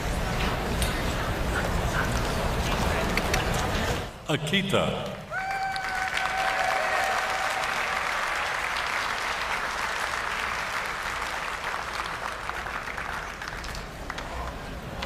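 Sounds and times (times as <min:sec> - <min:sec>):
audience applauding: 0:05.3 - 0:15.0.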